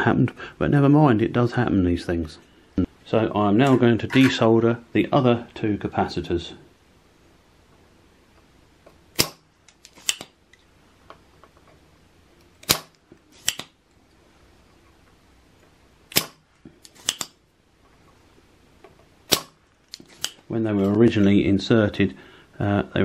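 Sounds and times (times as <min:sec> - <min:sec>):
desoldering pump snapping: 0:09.2 - 0:10.4, 0:12.5 - 0:13.8, 0:16.1 - 0:17.4, 0:19.3 - 0:20.5.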